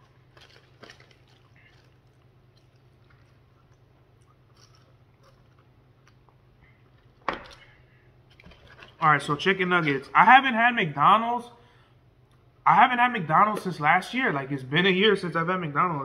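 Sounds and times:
chewing fries: 0:00.0 - 0:09.0
low steady hum: 0:00.0 - 0:16.0.

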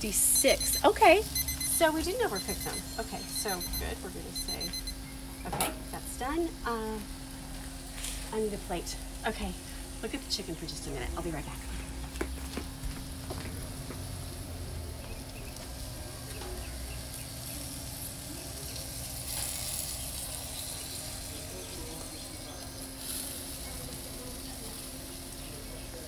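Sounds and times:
steady low hum: 0:00.0 - 0:19.3
meat sizzling on a grill: 0:00.0 - 0:26.0.

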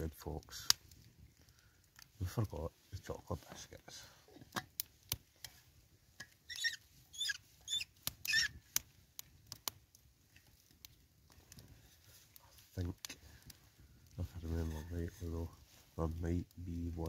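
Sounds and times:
wood fire crackling: 0:00.0 - 0:17.0
flask lid squeaking: 0:06.5 - 0:08.5.

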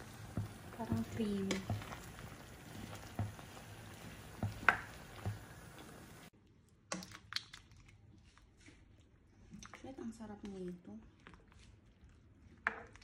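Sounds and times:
utensil clicking against pan: 0:00.2 - 0:06.0.

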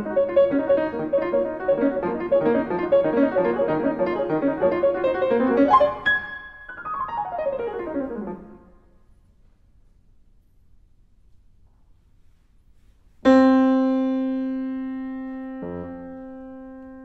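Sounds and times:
grand piano playing fast passages: 0:00.0 - 0:08.8, 0:13.2 - 0:17.0.

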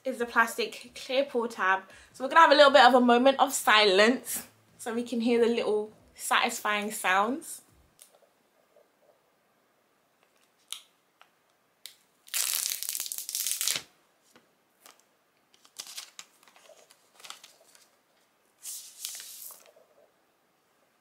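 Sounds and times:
plastic wrap ripping: 0:12.2 - 0:13.9, 0:14.8 - 0:17.9
plastic wrap tearing and crinkling: 0:12.2 - 0:13.9, 0:14.8 - 0:18.0, 0:18.6 - 0:19.8.

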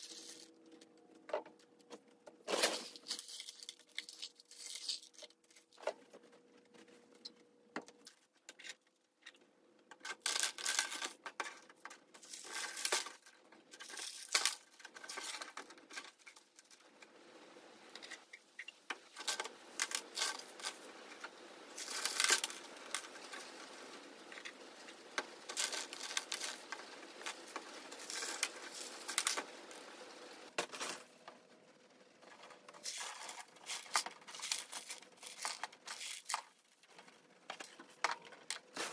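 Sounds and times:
clay pebbles rattling into plastic pot: 0:00.0 - 0:06.9, 0:08.0 - 0:16.9, 0:17.9 - 0:29.9, 0:32.2 - 0:38.9.

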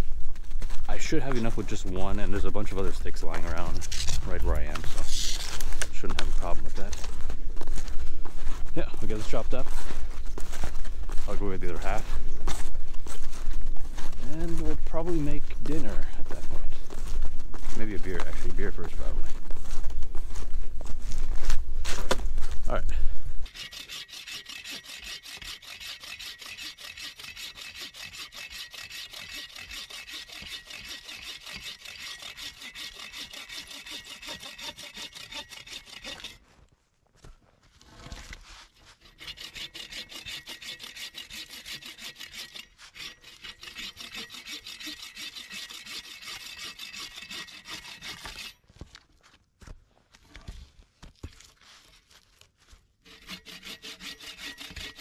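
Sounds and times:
bow saw cutting a log: 0:23.4 - 0:36.4, 0:38.8 - 0:48.6, 0:53.0 - 0:55.0.

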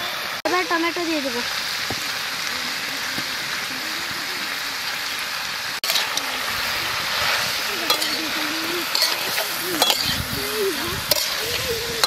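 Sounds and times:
curry sizzling in a pan: 0:00.0 - 0:12.0
metal spatula scraping pan: 0:05.8 - 0:12.0.

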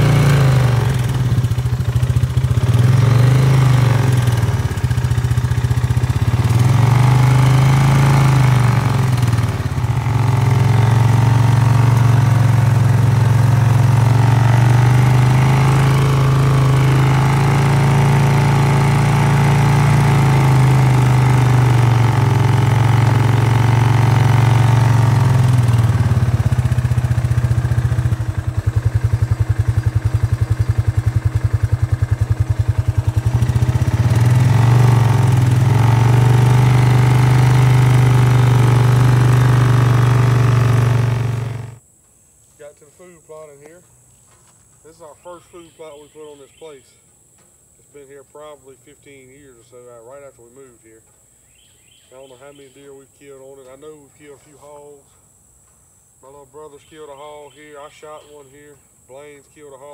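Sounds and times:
atv engine running: 0:00.0 - 0:41.8.

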